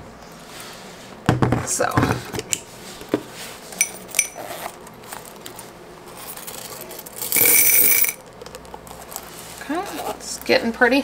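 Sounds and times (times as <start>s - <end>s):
coins clinking: 3.8s - 4.4s, 7.2s - 8.2s
coins rattling into container: 7.2s - 8.2s.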